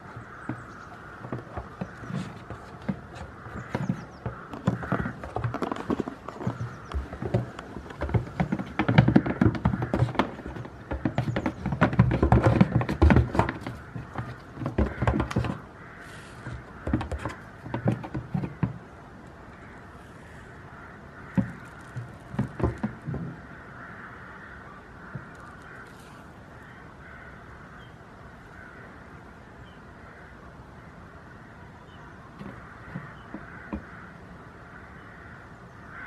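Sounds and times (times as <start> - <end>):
hooves knocking on plastic tubs: 0.0 - 18.9, 21.2 - 23.6, 32.4 - 34.2.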